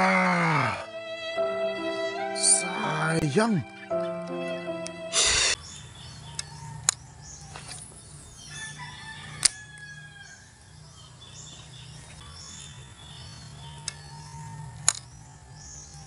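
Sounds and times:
rooster crowing: 0:08.5 - 0:10.5.

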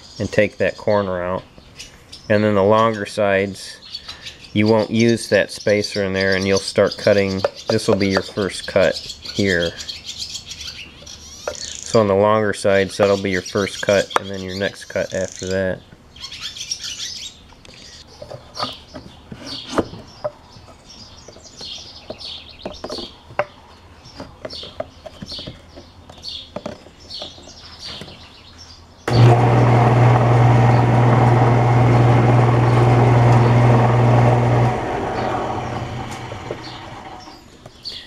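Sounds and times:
birds chirping: 0:00.0 - 0:38.0
table saw running: 0:29.1 - 0:37.4.

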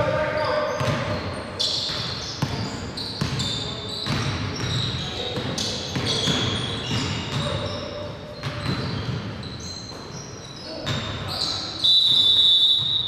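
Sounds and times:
basketball bouncing: 0:00.8 - 0:10.1.

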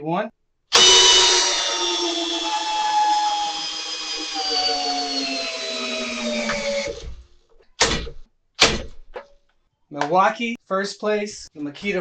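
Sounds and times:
drill motor whine: 0:00.7 - 0:07.2.

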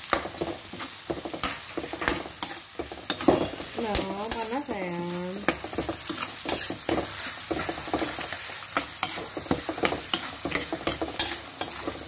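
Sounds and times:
paste sizzling in hot oil: 0:00.0 - 0:12.0
metal ladle scraping a wok: 0:05.4 - 0:12.0.

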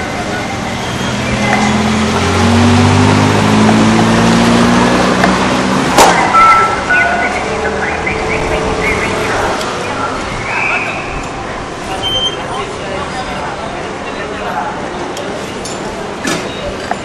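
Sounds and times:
car engine passing: 0:00.0 - 0:13.7.

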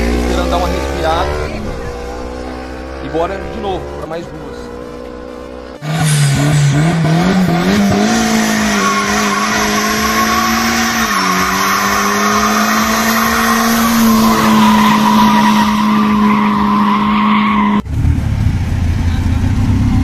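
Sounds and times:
turbocharged engine revving high: 0:00.0 - 0:20.0
tyres spinning and squealing: 0:05.8 - 0:17.8.

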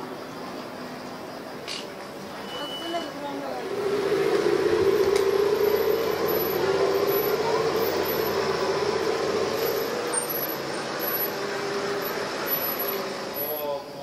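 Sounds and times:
motorcycle engine running: 0:03.5 - 0:13.1.

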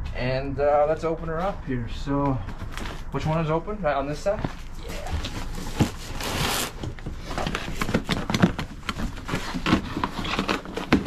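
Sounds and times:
cardboard scraping and rustling: 0:04.2 - 0:11.0
cardboard tearing: 0:04.8 - 0:11.0.

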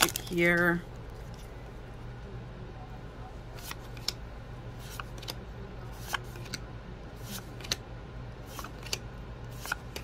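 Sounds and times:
steady low hum: 0:00.0 - 0:10.0
cards clicking off a stack: 0:06.0 - 0:06.6, 0:08.5 - 0:10.0.

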